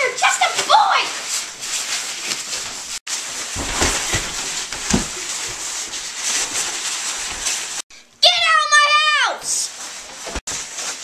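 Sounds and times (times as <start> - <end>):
scuffling and rustling: 0.0 - 7.8, 9.4 - 11.0
dull thumps: 3.4 - 7.6.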